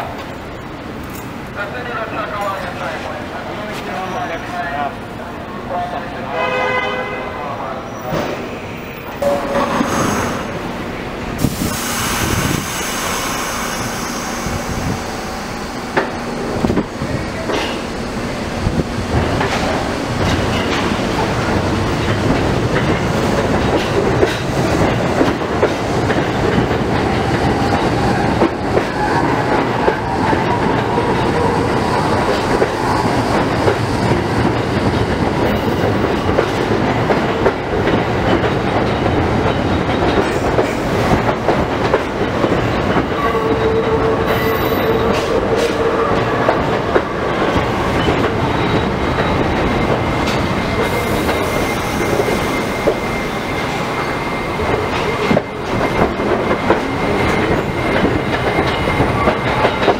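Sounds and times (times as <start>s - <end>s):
train wheels clacking over rail joints: 18.7s - 59.9s.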